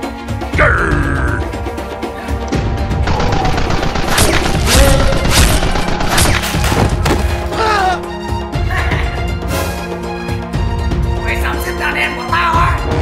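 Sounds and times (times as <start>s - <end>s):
background music: 0.0s - 13.0s
rapid gunfire sound effects: 3.1s - 7.0s.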